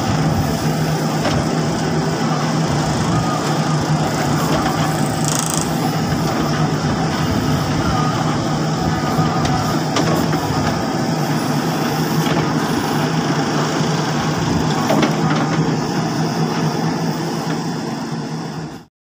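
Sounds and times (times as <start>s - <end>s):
backhoe digging gravel: 0.0s - 16.8s
diesel engine running: 0.0s - 18.9s.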